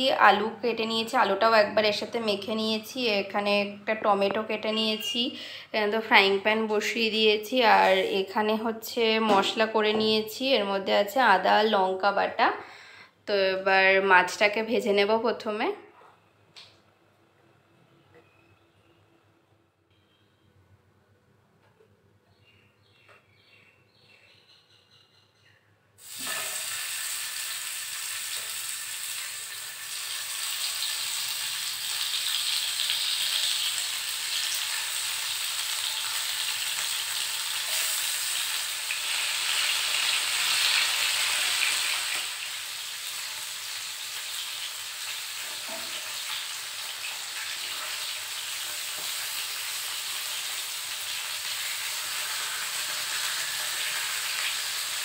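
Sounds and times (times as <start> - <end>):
fish sizzling in hot oil: 26.0 - 55.0.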